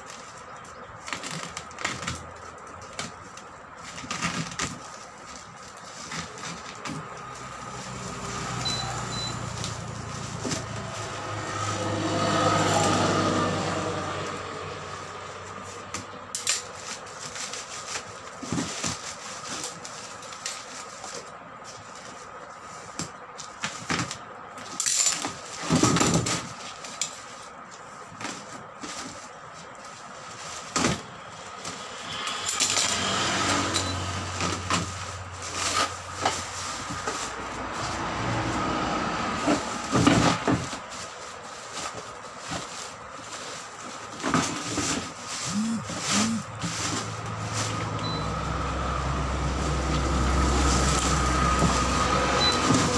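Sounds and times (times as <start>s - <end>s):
plastic sacking rustling: 0.0s - 13.4s, 14.8s - 23.6s, 33.4s - 52.9s.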